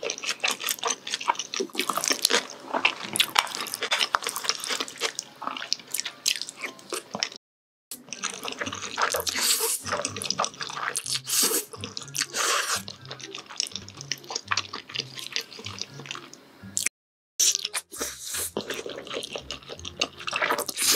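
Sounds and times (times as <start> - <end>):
wet smacking and chewing: 0.0 - 7.4, 8.0 - 20.9
slurping noodles: 8.0 - 16.3, 17.4 - 20.9.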